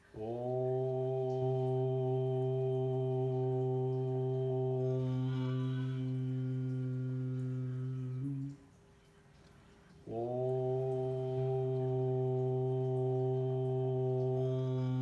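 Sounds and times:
man chanting a long tone: 0:00.0 - 0:08.6, 0:10.0 - 0:15.0.

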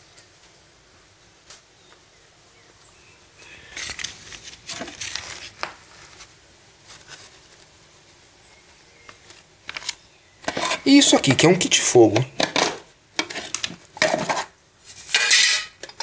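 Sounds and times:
knife scraping on countertop: 0:10.4 - 0:10.8, 0:12.4 - 0:16.0.

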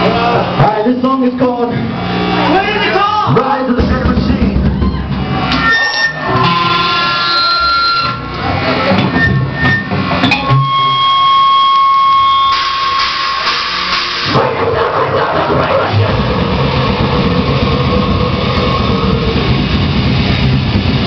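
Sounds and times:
live band playing: 0:02.1 - 0:21.0.

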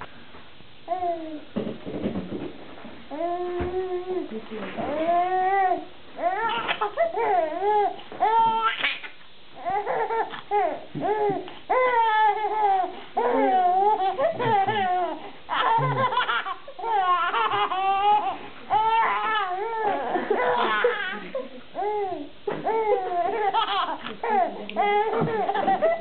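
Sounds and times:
baby laughing: 0:08.4 - 0:26.0.

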